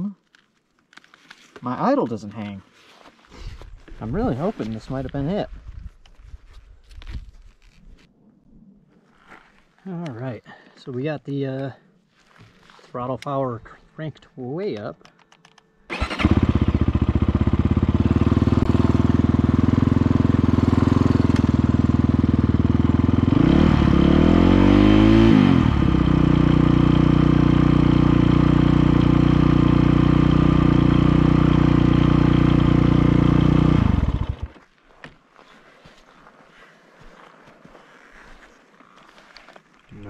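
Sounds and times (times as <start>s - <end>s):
dirt bike engine idling: 15.9s - 34.6s.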